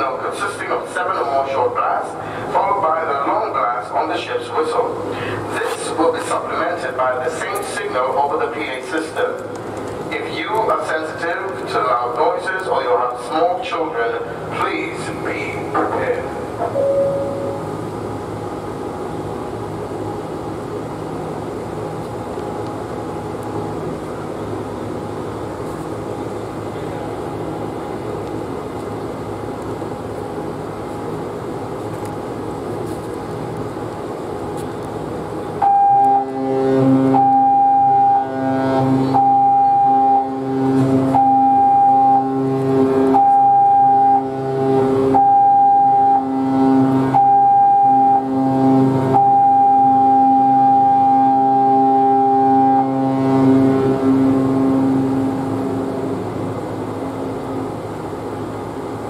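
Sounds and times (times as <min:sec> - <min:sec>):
deep ship whistle blasts: 0:35.6 - 0:55.4.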